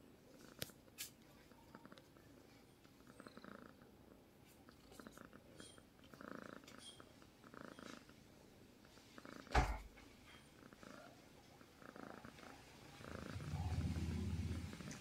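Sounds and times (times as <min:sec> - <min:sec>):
cat purring: 0:00.1 - 0:15.0.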